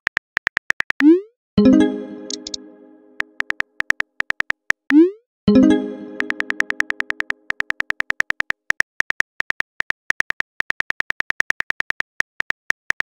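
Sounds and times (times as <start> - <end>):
message received chime: 1.6 - 3.4, 5.5 - 7.4
phone keyboard typing clicks: 2.2 - 2.6, 3.2 - 4.8, 6.2 - 13.0.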